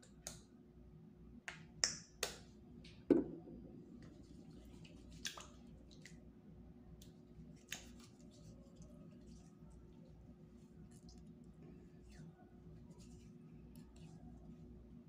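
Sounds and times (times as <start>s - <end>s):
dull knock: 3.1s - 3.5s.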